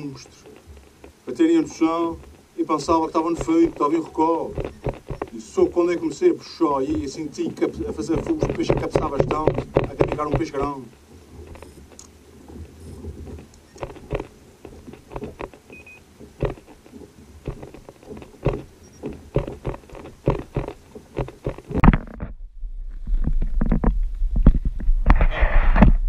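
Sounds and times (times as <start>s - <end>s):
light knocks and taps: 1.9s - 6.1s, 6.9s - 22.0s.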